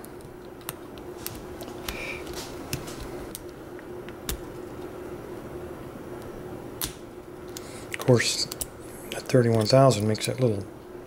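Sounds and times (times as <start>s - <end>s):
steady hum: 0.0s - 11.0s.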